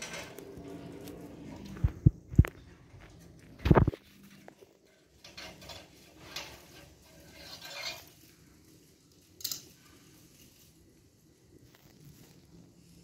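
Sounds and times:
screwdriver scraping on metal: 0:05.2 - 0:08.2.

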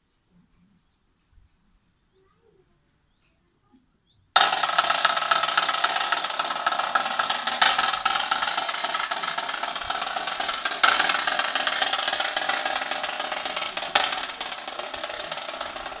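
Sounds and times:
snare drum roll: 0:04.4 - 0:16.0.

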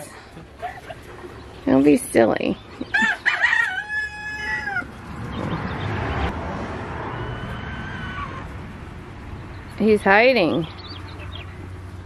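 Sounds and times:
rooster crowing: 0:02.9 - 0:05.0, 0:07.0 - 0:08.6.

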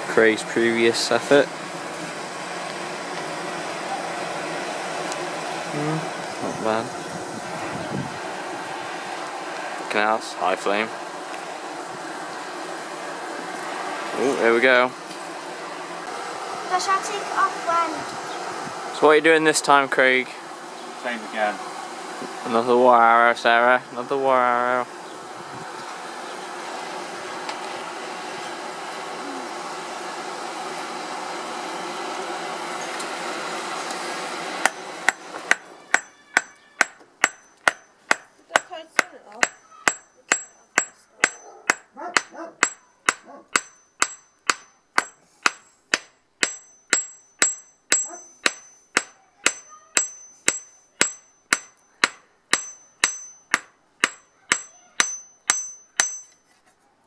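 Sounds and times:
blower running: 0:00.0 - 0:36.0
hammer ringing on hot iron: 0:34.6 - 0:56.4.

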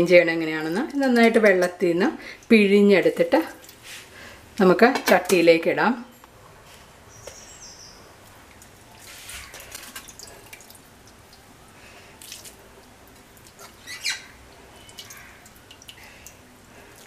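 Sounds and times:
water dripping and splattering: 0:02.4 - 0:03.8, 0:08.2 - 0:11.5, 0:12.2 - 0:17.0.

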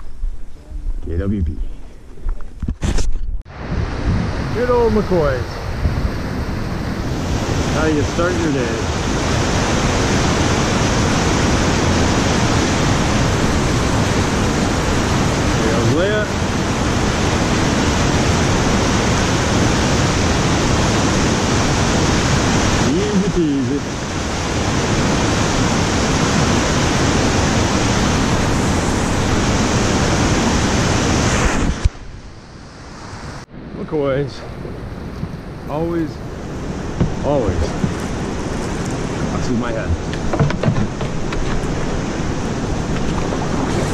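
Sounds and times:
whitewater rapid roaring: 0:03.5 - 0:31.9, 0:34.7 - 0:43.9
river rapids rushing: 0:06.6 - 0:31.4.

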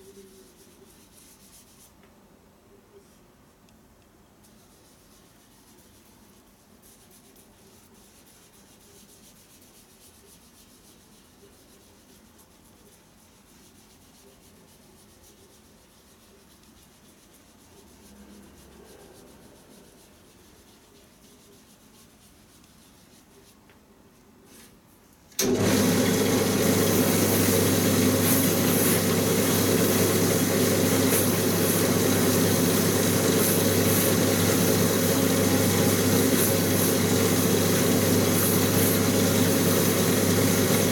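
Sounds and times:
sponge rubbing on leather: 0:00.0 - 0:02.0, 0:04.4 - 0:24.8, 0:26.6 - 0:40.9
machine motor humming: 0:25.4 - 0:40.9.

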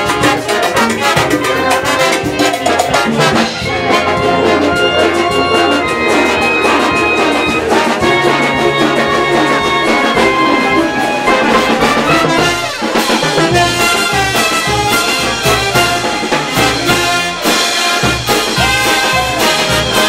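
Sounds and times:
brass melody: 0:00.0 - 0:20.0
drums: 0:00.0 - 0:20.0.

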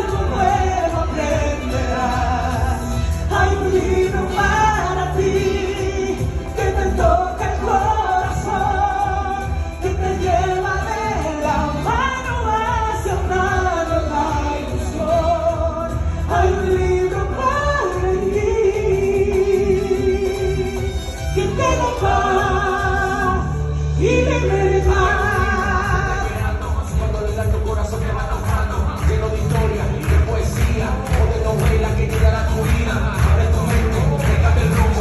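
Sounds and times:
instrumental backing: 0:00.0 - 0:35.0
person singing: 0:00.0 - 0:35.0.

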